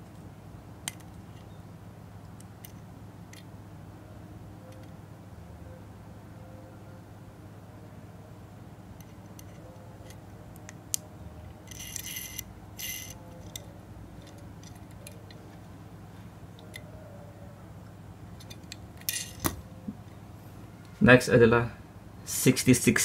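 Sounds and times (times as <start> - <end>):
faint steady hum: 0.0 - 23.0
toy car scraping: 11.6 - 13.6, 19.1 - 19.4
toy car clicks and taps: 11.7 - 13.6.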